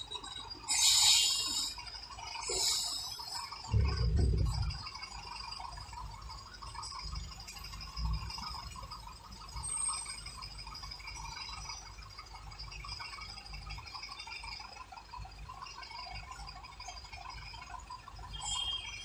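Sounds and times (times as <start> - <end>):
buzzing rattle: 0.0 - 19.0
engine rumble: 3.7 - 5.3.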